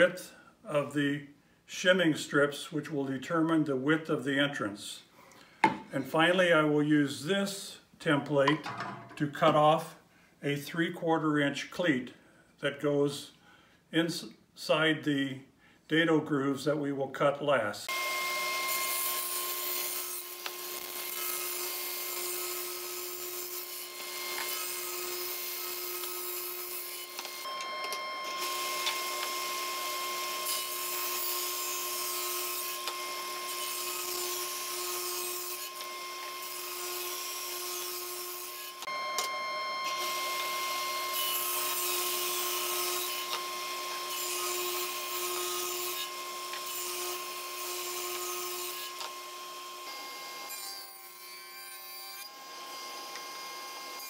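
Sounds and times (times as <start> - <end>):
saw ripping lumber: 17.9 - 27.6, 28.2 - 39.0, 39.8 - 54.0
table saw whining: 17.9 - 54.0.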